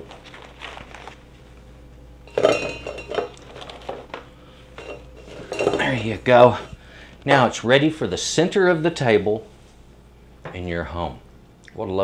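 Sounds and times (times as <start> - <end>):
breadsticks clattering in metal cylinder: 2.3 - 4.2.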